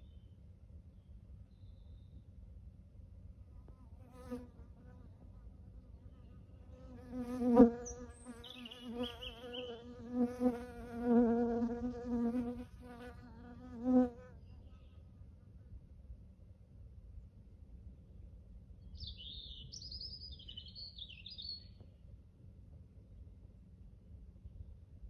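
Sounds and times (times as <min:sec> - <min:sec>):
bird chirping: 0:01.0 - 0:02.2, 0:07.7 - 0:10.0, 0:18.8 - 0:21.9
flying insect buzzing: 0:06.8 - 0:14.3.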